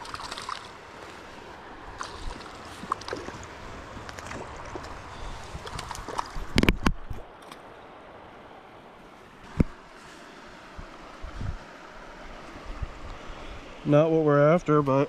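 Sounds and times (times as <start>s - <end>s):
water lapping and splashing: 0.0s - 7.7s
wind on microphone: 4.7s - 7.3s, 10.7s - 11.7s, 12.6s - 13.8s.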